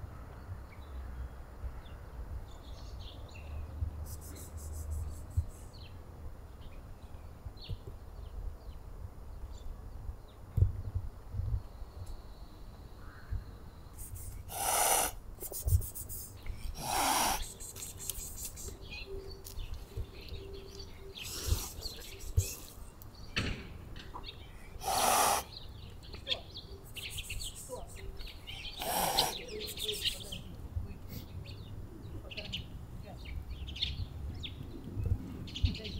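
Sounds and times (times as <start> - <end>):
cat hissing: 14.0 - 18.7, 21.2 - 22.7, 24.8 - 25.5, 28.6 - 30.0.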